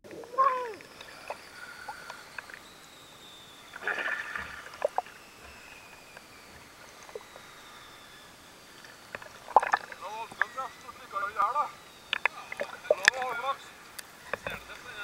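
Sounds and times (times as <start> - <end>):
small clicks: 0.1 - 2.7, 12.1 - 13.3
water splashing and lapping: 3.7 - 7.5, 8.7 - 10.6.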